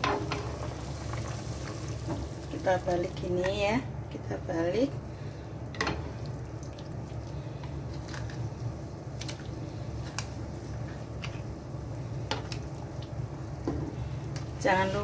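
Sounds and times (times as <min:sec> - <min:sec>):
liquid boiling in pot: 0:00.0 - 0:15.0.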